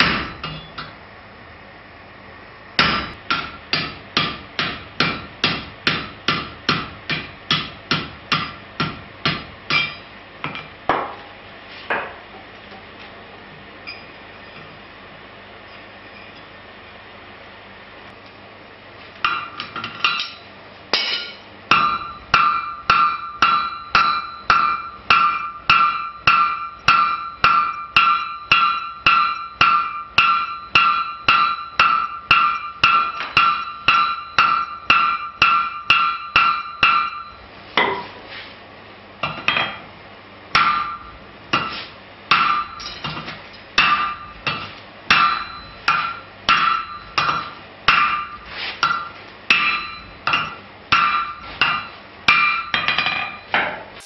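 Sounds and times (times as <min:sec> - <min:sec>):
hammer striking steel on anvil: 0:00.0 - 0:01.0, 0:02.8 - 0:11.2, 0:19.2 - 0:38.2, 0:40.5 - 0:54.0.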